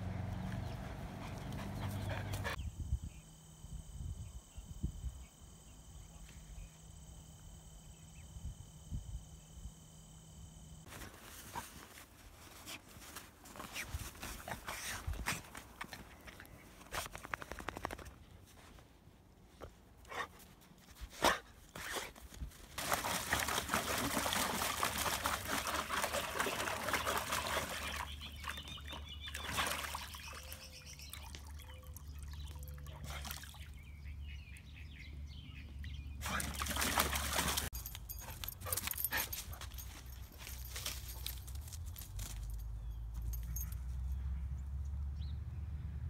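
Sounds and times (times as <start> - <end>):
water pouring from hose into tub: 22.8 - 33.6, 36.2 - 37.7.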